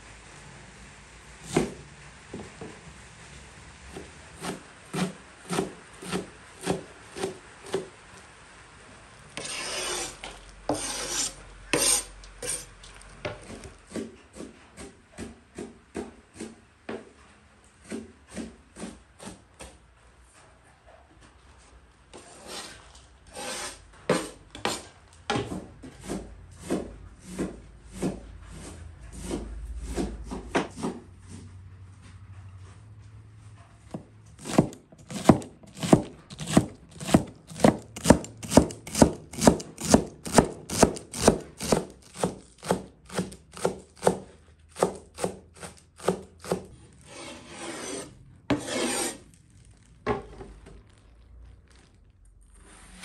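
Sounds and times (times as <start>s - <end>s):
knife scraping board: 3.9s - 7.8s, 9.4s - 15.7s, 22.1s - 31.5s, 33.9s - 50.5s, 52.5s - 53.0s
knife chopping on wooden board: 3.9s - 7.9s, 33.9s - 49.2s.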